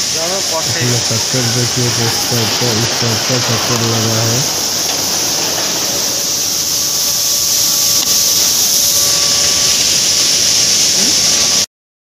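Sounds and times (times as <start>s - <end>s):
machinery hiss: 0.0s - 11.7s
faint hum: 0.7s - 6.5s.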